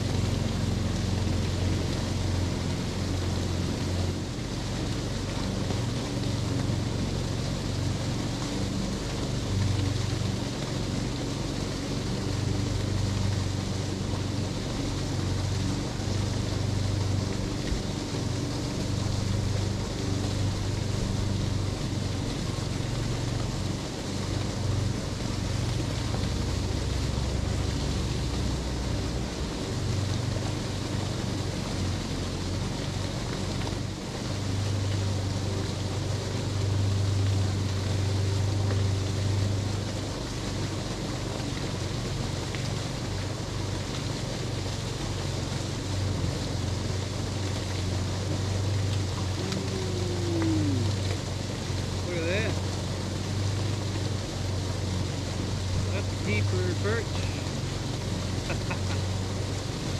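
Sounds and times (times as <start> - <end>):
low engine hum: 0.0 - 59.9
outdoor hiss: 0.0 - 59.9.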